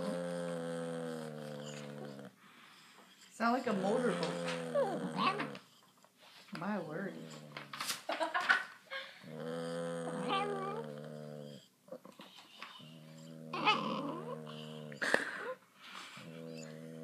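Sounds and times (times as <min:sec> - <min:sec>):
dog rumbling in throat: 0:00.0 - 0:02.3, 0:03.5 - 0:05.7, 0:09.2 - 0:15.4, 0:16.2 - 0:17.0.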